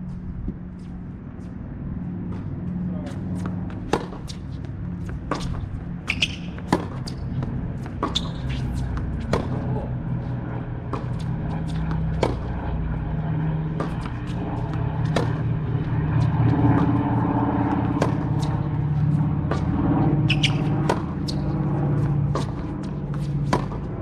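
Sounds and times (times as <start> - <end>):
tennis ball struck by rackets: 3.1 - 10.1, 10.8 - 12.5, 13.7 - 15.8, 16.7 - 18.8, 19.4 - 24.0
ball bouncing on hard court: 3.4 - 9.9, 10.9 - 12.5, 13.7 - 18.7, 19.4 - 24.0.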